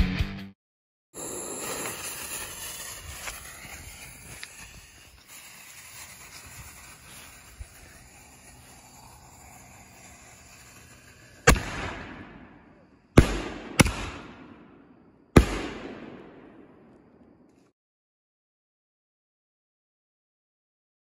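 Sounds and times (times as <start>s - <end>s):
firework hissing and crackling: 1.2s - 16.7s
loud firework bang: 5.7s - 14.8s.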